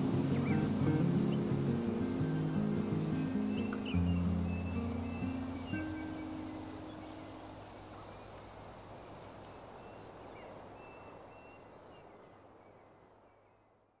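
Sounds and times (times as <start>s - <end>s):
surf hissing: 0.0s - 10.2s
small birds chirping: 0.0s - 13.8s.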